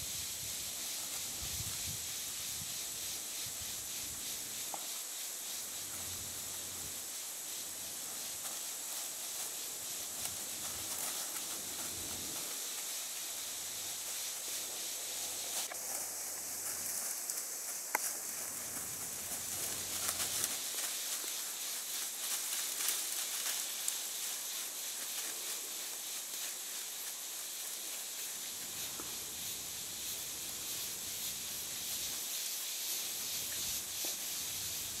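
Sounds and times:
steady high hiss: 0.0s - 35.0s
faint rustles: 7.6s - 35.0s.

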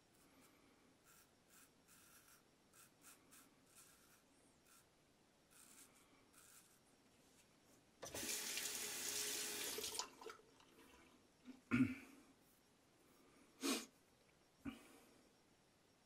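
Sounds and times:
water tap running: 8.0s - 10.5s.

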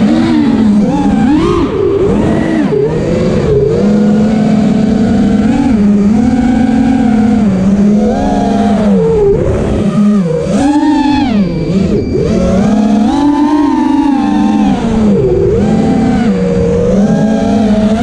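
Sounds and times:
quadcopter motors whining: 0.0s - 18.0s.

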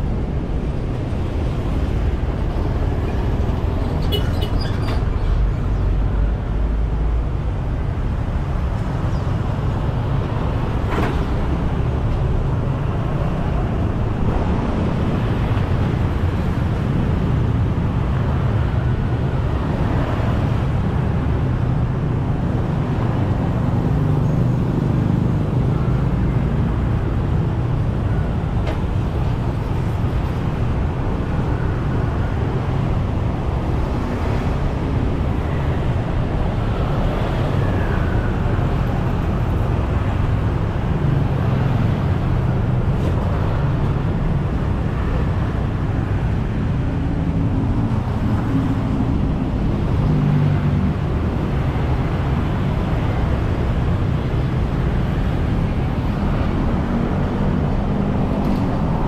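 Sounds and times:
vehicles passing low rumble: 0.0s - 59.0s.

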